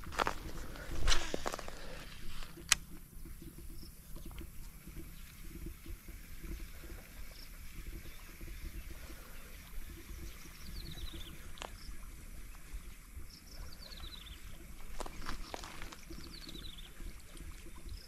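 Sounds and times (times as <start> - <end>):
low rumbling microphone noise: 0.0 - 18.0
bird chirping: 7.2 - 12.0, 13.3 - 17.1.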